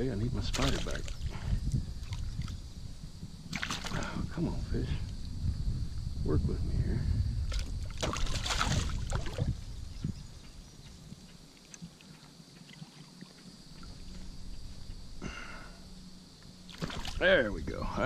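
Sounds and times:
fish thrashing and splashing: 3.5 - 4.1, 7.5 - 9.5, 16.7 - 17.2.

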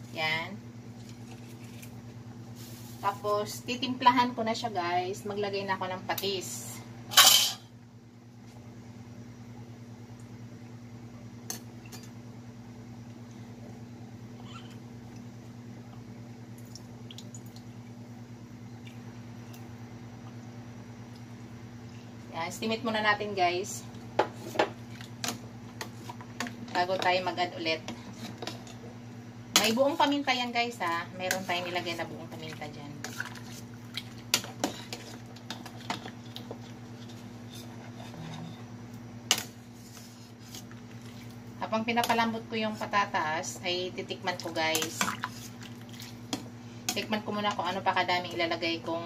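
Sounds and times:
steady low hum: 0.0 - 49.0
soup simmering in a pot: 31.4 - 41.6, 44.6 - 46.9.

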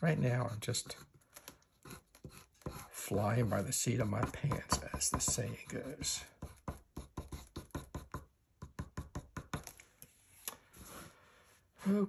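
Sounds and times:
pencil strokes on paper: 0.1 - 8.2.

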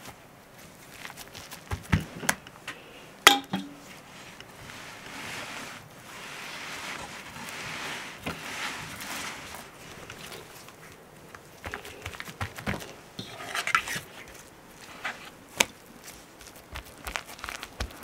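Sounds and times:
kitchenware clink: 3.3 - 3.8
knife scraping spread: 3.7 - 18.0.

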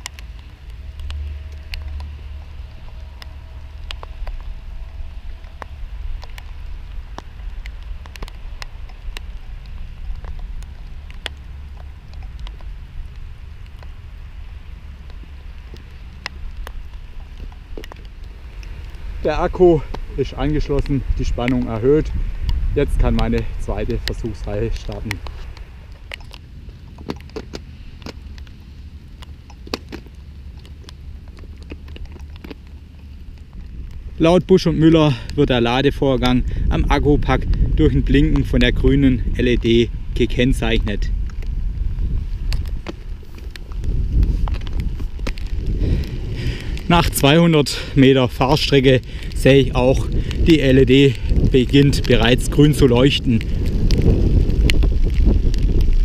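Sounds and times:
sharp ticks: 0.0 - 14.0
raindrops ticking: 0.0 - 56.0
steady rain rumble: 0.0 - 56.0.

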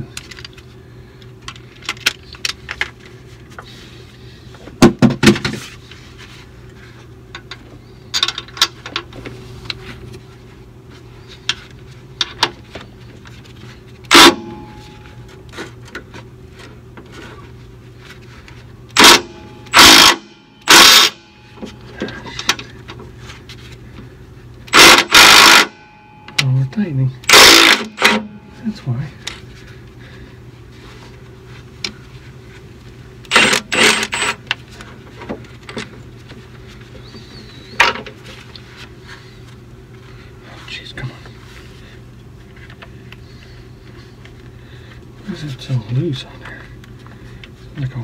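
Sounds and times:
steady low hum: 0.0 - 48.0
impact wrench bursts: 14.1 - 14.9, 18.9 - 21.3, 24.7 - 25.9, 27.2 - 28.4, 33.3 - 34.4.

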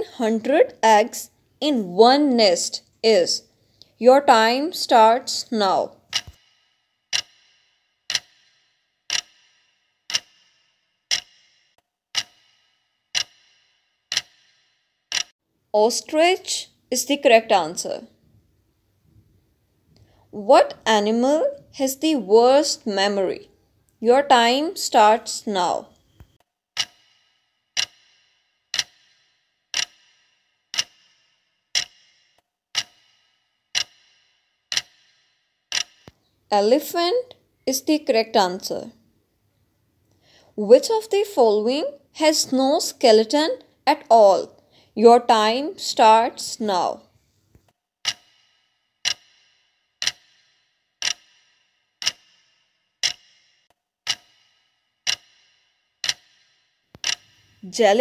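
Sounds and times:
clock ticking: 2.7 - 15.3, 23.8 - 38.9, 45.3 - 47.2, 48.0 - 58.0.

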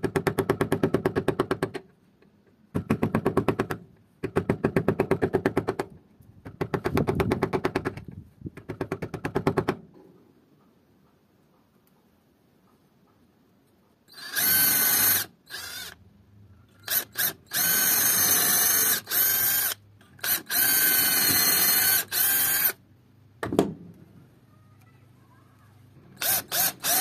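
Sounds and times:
cordless drill boring through wood: 14.1 - 16.0, 16.8 - 22.8, 26.2 - 27.0
drill trigger blips: 26.2 - 27.0.

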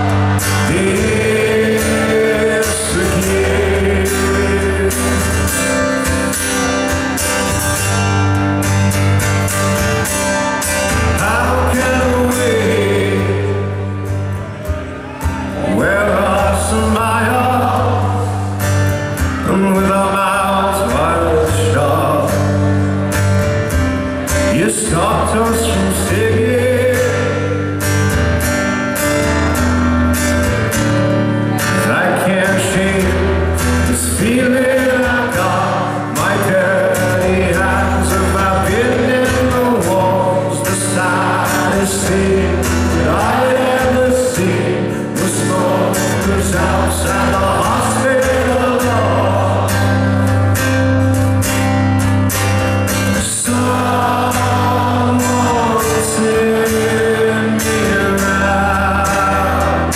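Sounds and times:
man singing: 0.0 - 8.0, 10.2 - 23.1, 24.2 - 28.1, 31.4 - 51.2, 52.8 - 59.9
acoustic guitar: 0.0 - 59.9.

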